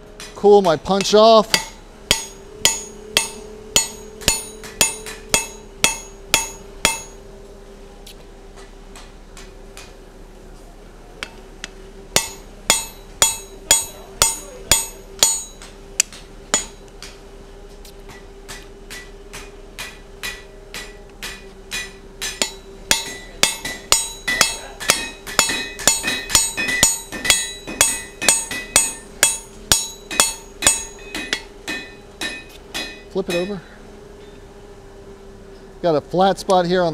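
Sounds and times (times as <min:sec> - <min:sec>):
faint steady hum: 0:00.0 - 0:36.9
hammer striking hot punch: 0:00.2 - 0:07.2, 0:12.2 - 0:17.2, 0:18.1 - 0:33.6
sharp ringing clang of anvil: 0:01.0 - 0:07.2, 0:12.2 - 0:15.6, 0:20.3 - 0:33.6.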